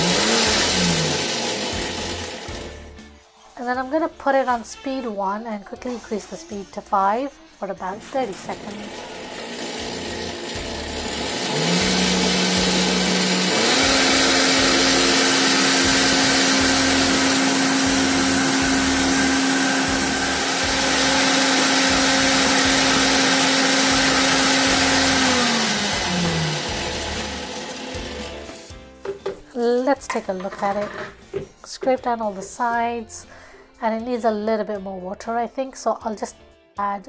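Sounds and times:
blender motor whining: 0:00.0 - 0:02.9, 0:08.2 - 0:28.7.

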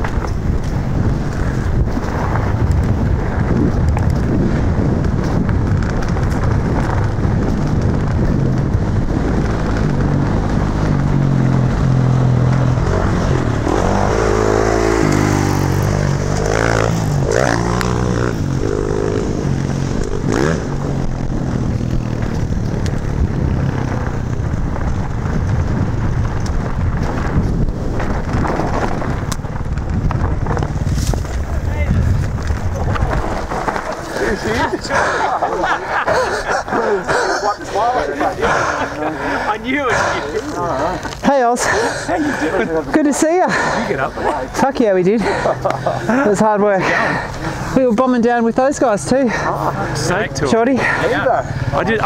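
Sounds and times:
wind buffeting microphone: 0:00.0 - 0:52.0
dirt bike engine revving: 0:06.4 - 0:26.1
tyres rumbling over gravel: 0:21.6 - 0:35.7.

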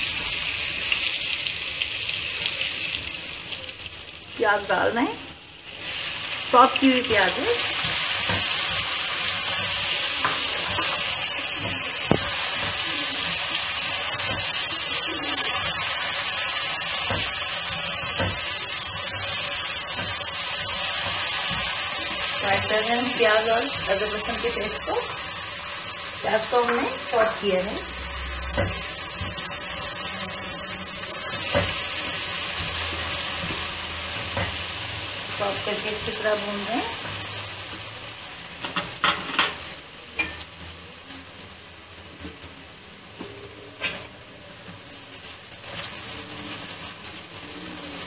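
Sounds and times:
onions sizzling in a pan: 0:00.0 - 0:48.0
spatula tapping a pan: 0:07.8 - 0:08.9, 0:09.6 - 0:12.9, 0:16.9 - 0:18.6, 0:19.9 - 0:20.3.

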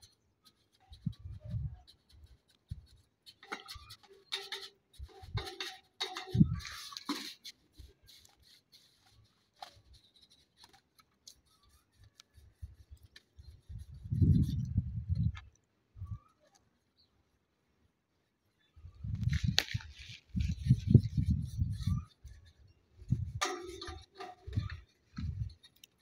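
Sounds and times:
paintbrush scraping on metal: 0:00.0 - 0:14.7, 0:20.4 - 0:26.0.

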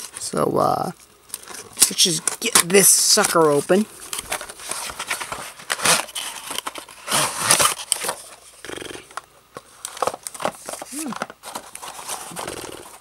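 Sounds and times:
cardboard box being torn open: 0:05.7 - 0:08.0.

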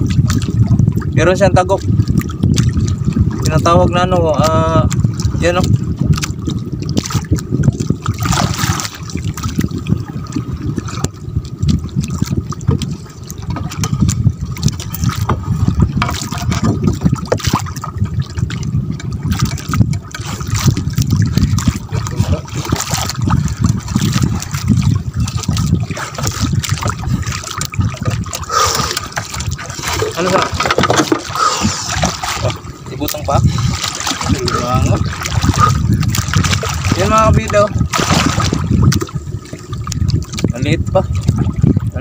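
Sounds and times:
water sloshing and splashing: 0:00.0 - 0:42.0.

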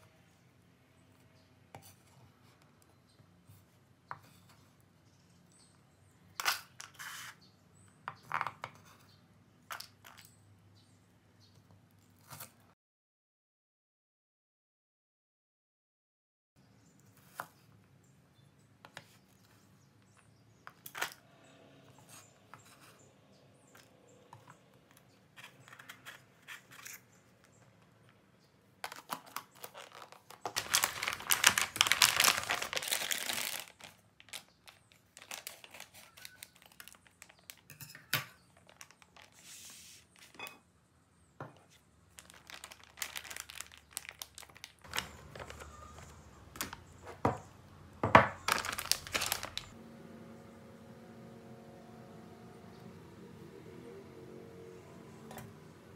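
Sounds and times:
plastic bag crinkling: 0:28.8 - 0:37.7, 0:38.4 - 0:40.3, 0:42.1 - 0:46.9, 0:48.2 - 0:49.8.

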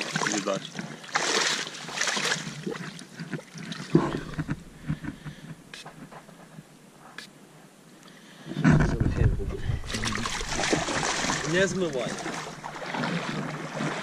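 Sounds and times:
fish splashing in water: 0:01.0 - 0:05.0, 0:09.8 - 0:14.0.

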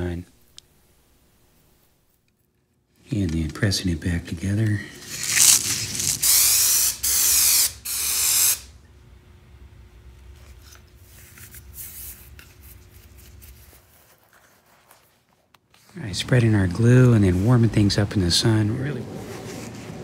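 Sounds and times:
aerosol spray hissing: 0:05.0 - 0:08.7
rustling foam and fabric: 0:10.4 - 0:18.0, 0:18.9 - 0:20.0.

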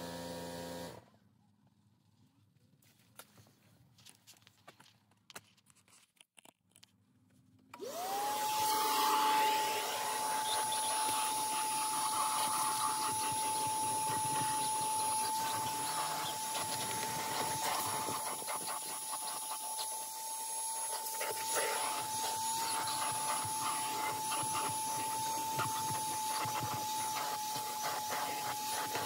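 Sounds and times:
vacuum cleaner motor whining: 0:00.0 - 0:01.0, 0:07.8 - 0:29.0
scraping and rubbing: 0:09.8 - 0:20.1.

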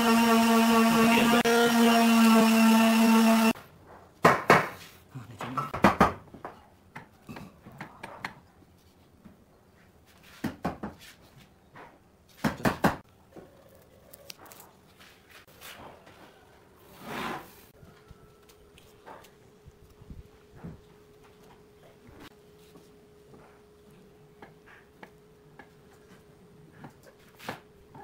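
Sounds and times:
power tool motor whine: 0:00.0 - 0:03.6.

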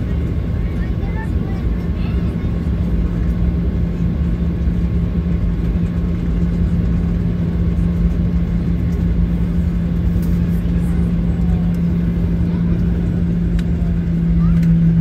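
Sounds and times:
jet engine cabin rumble: 0:00.0 - 0:15.0.

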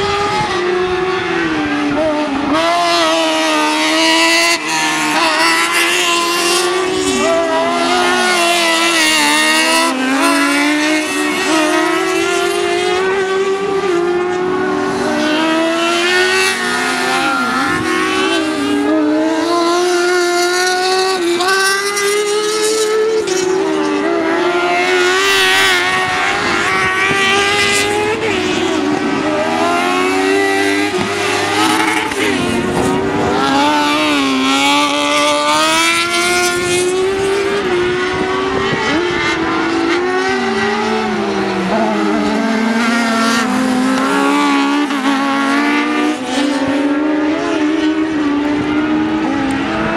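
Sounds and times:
buggy engines revving: 0:00.0 - 0:49.9.

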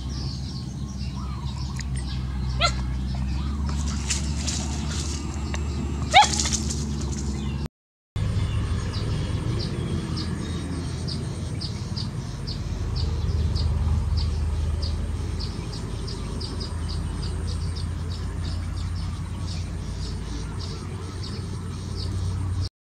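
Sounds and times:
low rumble: 0:08.2 - 0:20.4.

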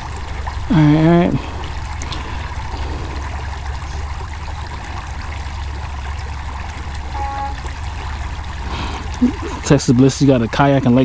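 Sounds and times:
creek water trickling: 0:00.0 - 0:11.0
low steady rumble: 0:00.0 - 0:11.0
short electronic beep: 0:07.1 - 0:07.8.

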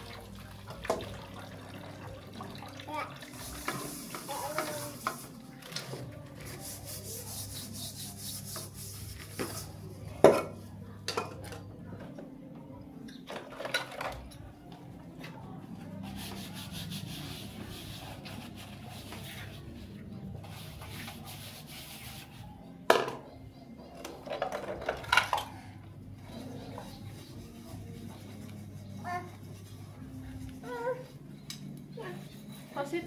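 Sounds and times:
sponge scrubbing metal pans: 0:03.3 - 0:09.8.

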